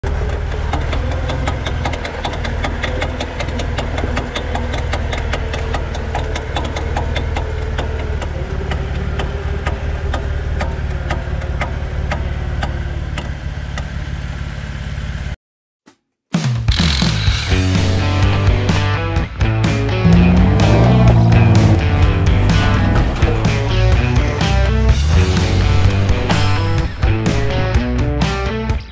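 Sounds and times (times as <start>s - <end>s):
quick regular clicking under car: 0.0s - 14.0s
car engine running: 17.6s - 28.2s.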